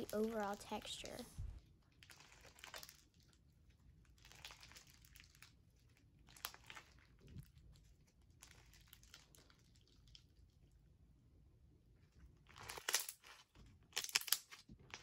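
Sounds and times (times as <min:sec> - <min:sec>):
foam slime crackling: 0:00.0 - 0:10.6.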